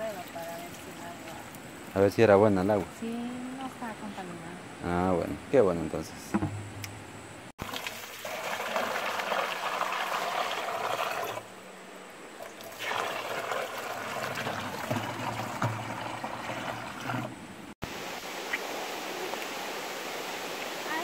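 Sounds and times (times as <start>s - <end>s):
water pouring into a plastic jug: 7.6s - 11.5s, 12.4s - 17.4s.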